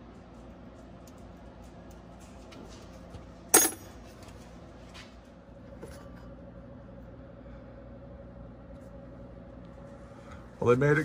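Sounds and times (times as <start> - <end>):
quiet steady hum: 0.0 - 11.0
metallic clink: 3.5 - 3.9.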